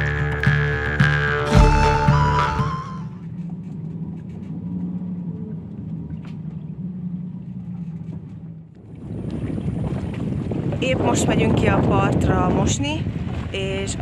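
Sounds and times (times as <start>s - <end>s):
strong wind drone: 8.7s - 14.0s.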